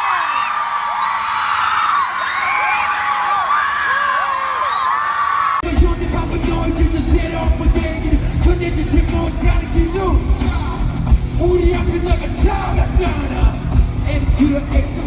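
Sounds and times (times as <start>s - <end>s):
live band with drums and bass: 5.6s - 15.0s
man singing into microphone: 5.6s - 15.0s.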